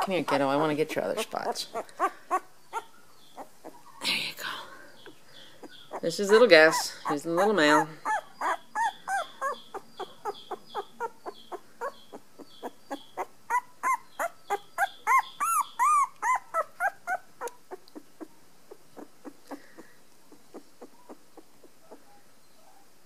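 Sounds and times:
puppy squeaking and whimpering: 0.0 - 4.0, 5.0 - 22.2.

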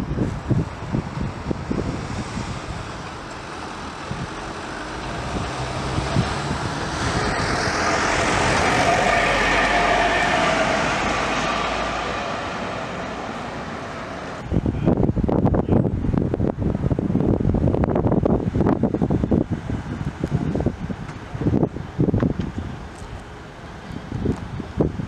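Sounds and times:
wind buffeting microphone: 0.0 - 25.0
vehicle passing by: 1.7 - 14.4.

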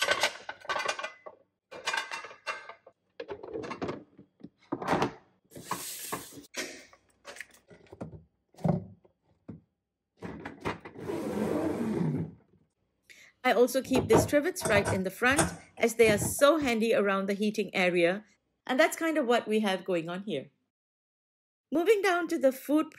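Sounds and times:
appliance sliding on shelf: 10.2 - 12.4
box scraping on shelf: 10.9 - 12.4
plates knocking in plastic box: 13.9 - 16.4.

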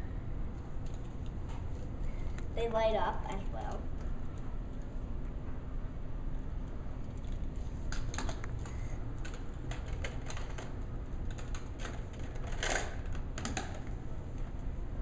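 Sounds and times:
plastic toy trucks clicking on floor: 9.2 - 13.9.

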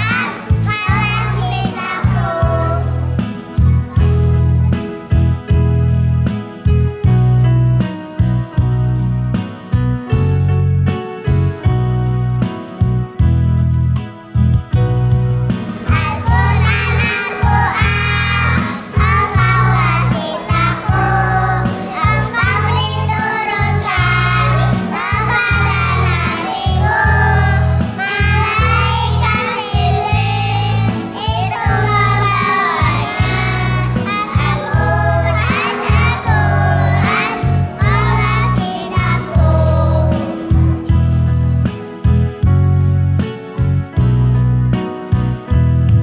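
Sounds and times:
children singing together: 0.0 - 3.0, 15.8 - 40.9
backing track with pulsing bass: 0.0 - 46.0.

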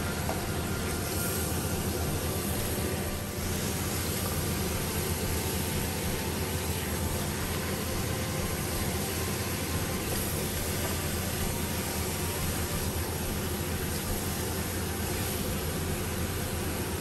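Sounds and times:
meat sizzling in a pan: 0.0 - 17.0.

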